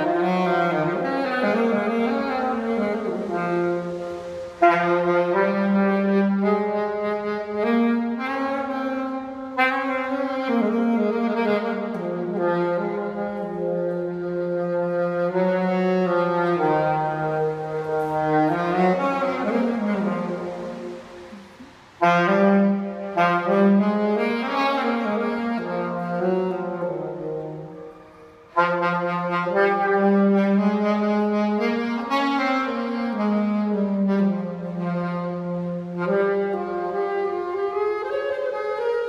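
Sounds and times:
saxophone held notes: 0.0s - 39.0s.

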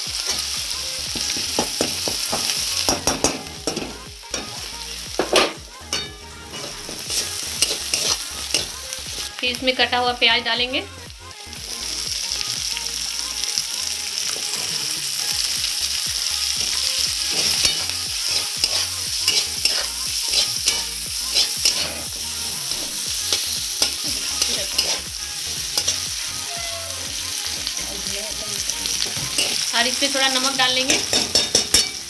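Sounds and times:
onions sizzling in hot oil: 0.0s - 32.0s
metal spatula scraping a pan: 5.2s - 9.3s, 14.3s - 15.0s, 16.6s - 25.1s, 28.9s - 29.7s, 30.3s - 32.0s.

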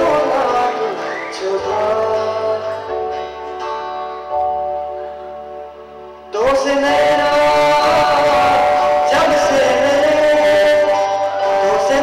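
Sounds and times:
man singing through microphone: 0.0s - 3.6s, 6.3s - 12.0s
guitar accompaniment: 0.0s - 12.0s.

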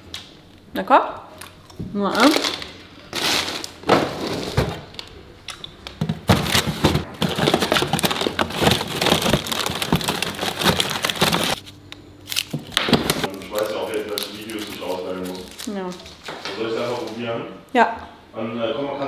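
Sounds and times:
frozen plastic bags crinkling: 2.1s - 4.6s, 6.3s - 11.6s, 13.1s - 15.9s.

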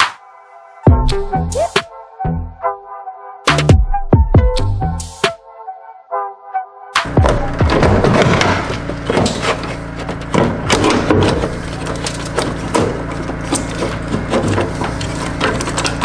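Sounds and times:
plastic knocking and scraping: 7.1s - 16.0s.

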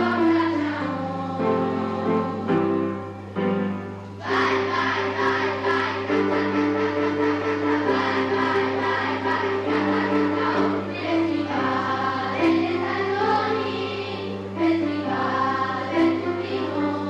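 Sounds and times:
choir singing: 0.0s - 3.0s, 4.2s - 17.0s
musical accompaniment: 0.0s - 17.0s
steady low hum: 0.0s - 17.0s.

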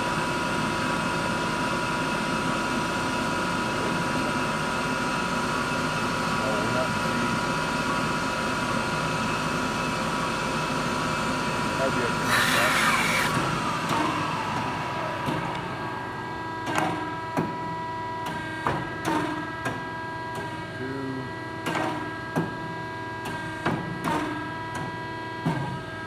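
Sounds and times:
band saw whine: 11.9s - 16.6s.

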